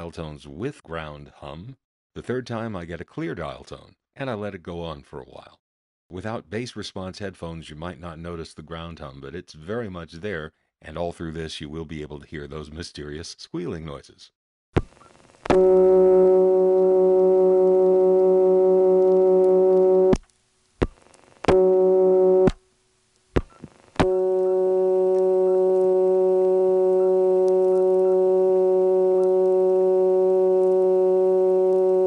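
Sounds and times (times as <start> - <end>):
low ground hum: 15.5 - 20.2, 23.6 - 32.0
telephone dial tone: 15.5 - 20.2, 24.0 - 32.0.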